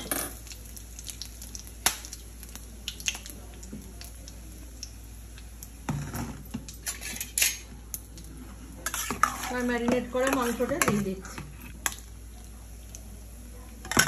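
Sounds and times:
metal utensils clinking on pots: 6.8 - 7.7, 8.8 - 12.0.

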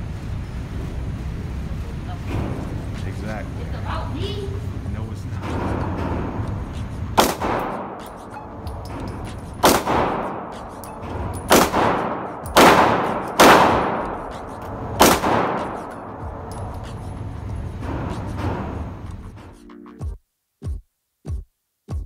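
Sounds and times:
pistol shots echoing indoors: 7.2 - 16.9.

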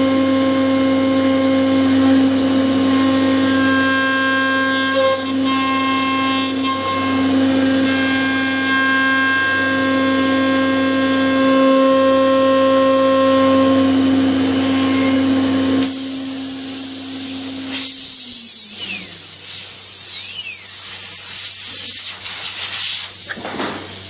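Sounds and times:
router spindle whining: 0.0 - 20.7
milling metal cutting noise: 1.7 - 21.9
steady hiss: 17.7 - 24.0.

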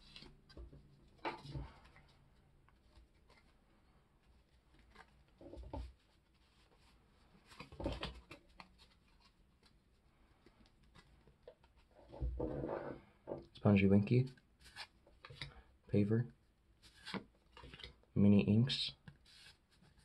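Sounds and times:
paper cards shuffling and rustling: 0.0 - 11.9, 14.3 - 15.5, 16.8 - 18.0, 19.0 - 20.0.

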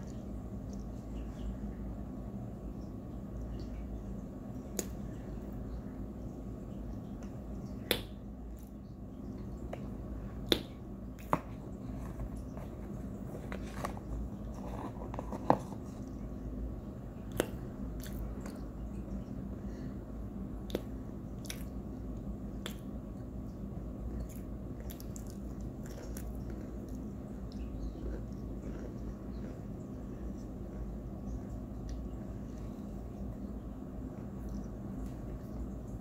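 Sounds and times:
person chewing and crunching: 24.2 - 30.9.

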